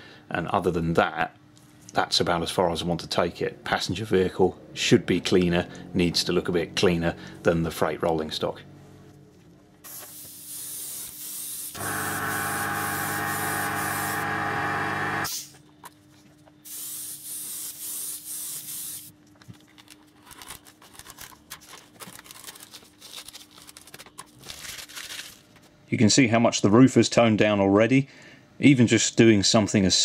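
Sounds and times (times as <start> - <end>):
airbrush spraying in hissing bursts: 9.8 - 15.6, 16.6 - 19.1
steady humming tone: 11.8 - 15.3.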